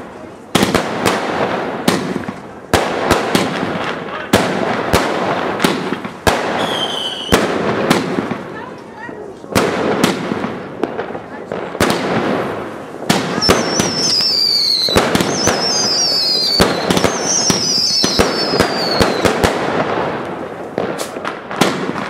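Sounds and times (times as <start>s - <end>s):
fireworks shots and bangs: 0.0s - 22.0s
falling firework whistles: 6.5s - 7.5s, 13.2s - 19.4s.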